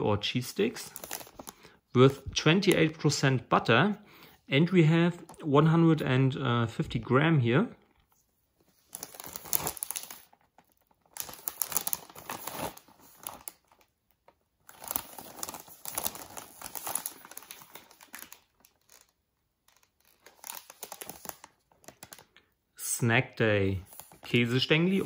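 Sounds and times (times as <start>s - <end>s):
plastic bag crinkling: 0.6s - 2.9s, 8.8s - 22.5s, 23.8s - 25.0s.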